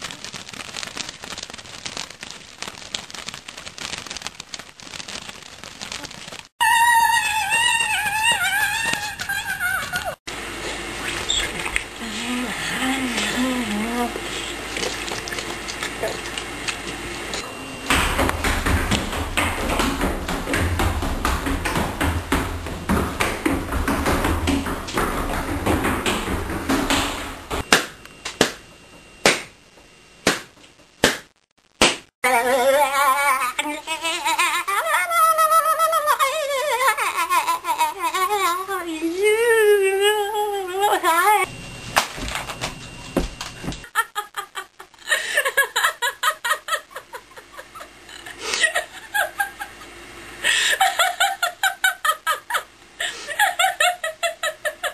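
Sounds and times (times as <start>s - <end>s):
balloons popping: 0.0s - 6.5s, 17.9s - 29.6s, 30.2s - 32.2s
noisy in-breath: 14.2s - 14.6s, 50.4s - 50.8s, 53.0s - 53.4s
woman laughing hard: 32.3s - 38.4s, 43.8s - 49.8s, 50.4s - 54.9s.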